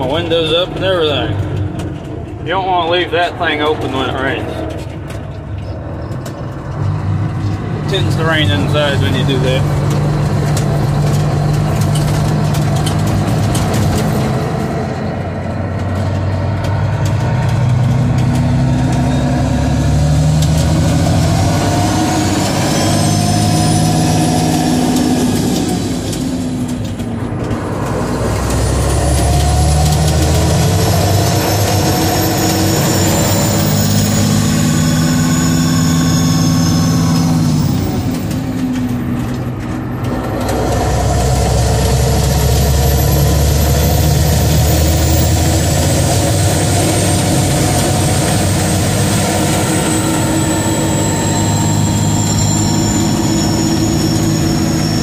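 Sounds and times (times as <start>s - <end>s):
truck diesel engine drone: 0.0s - 55.0s.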